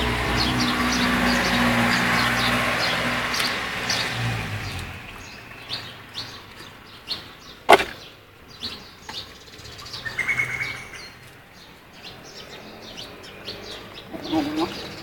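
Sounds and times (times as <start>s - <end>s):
birds chirping: 0.0s - 15.0s
bird trill: 5.2s - 15.0s.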